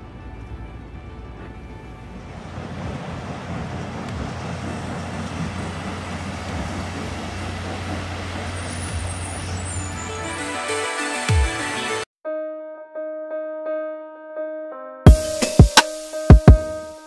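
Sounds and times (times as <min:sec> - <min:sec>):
diesel truck engine running: 0:01.2 - 0:10.5.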